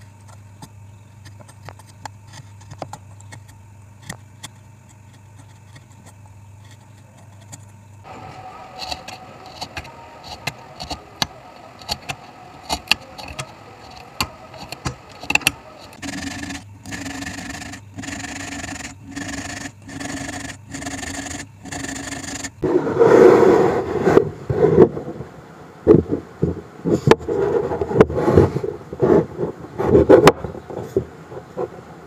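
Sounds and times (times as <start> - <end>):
hand saw cutting wood: 8.2 - 22.6
rough wood scrape: 11.8 - 24.9, 26.9 - 31.6.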